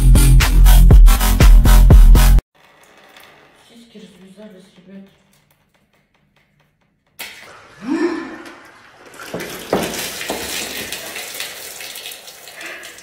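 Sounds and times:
water splashing onto floor: 0:07.2 - 0:13.0.

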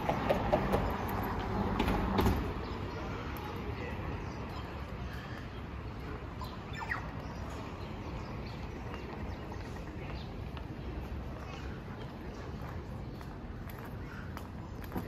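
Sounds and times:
traffic hum: 0:00.0 - 0:15.0
bird chirps: 0:06.4 - 0:09.8.

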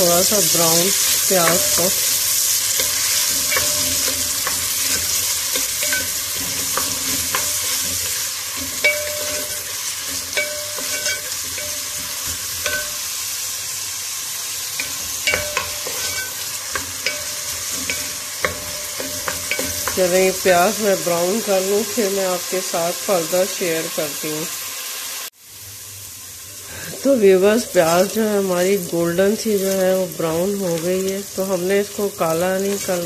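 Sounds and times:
onions sizzling in oil: 0:00.0 - 0:33.0
wooden spoon scraping metal pot: 0:00.6 - 0:12.9, 0:14.8 - 0:20.2.

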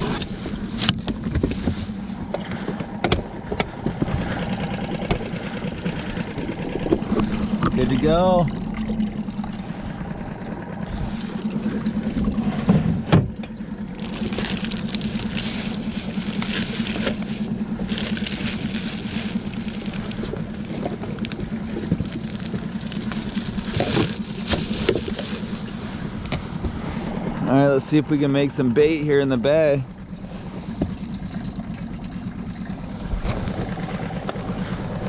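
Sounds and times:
outboard motor running: 0:00.0 - 0:35.0
plastic bag rustling: 0:14.0 - 0:25.7.

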